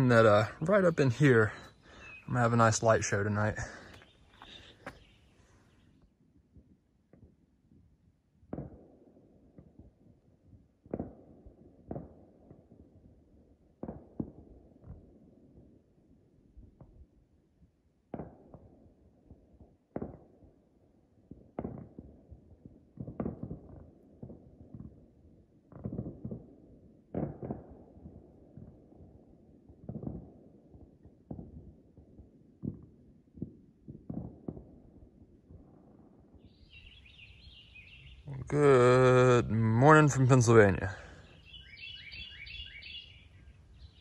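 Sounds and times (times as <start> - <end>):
distant fireworks booming: 10.8 - 12.7, 21.3 - 25.0, 25.7 - 43.3.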